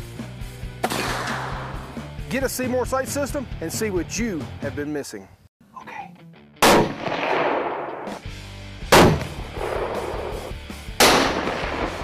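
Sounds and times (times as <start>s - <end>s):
background music: 0.0s - 12.0s
echoing gunshots: 0.8s - 1.8s, 6.6s - 8.2s, 8.9s - 12.0s.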